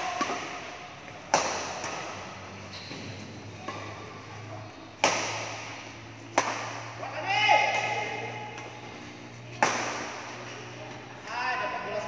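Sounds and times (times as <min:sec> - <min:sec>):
rackets hitting shuttlecock: 0:00.0 - 0:04.1, 0:05.0 - 0:08.8, 0:09.4 - 0:12.0.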